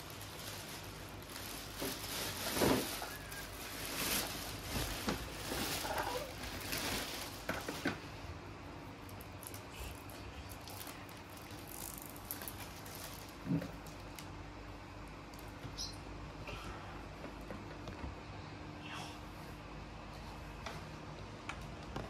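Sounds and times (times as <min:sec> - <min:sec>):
plastic bag rustling: 0:00.0 - 0:08.3, 0:09.0 - 0:14.3.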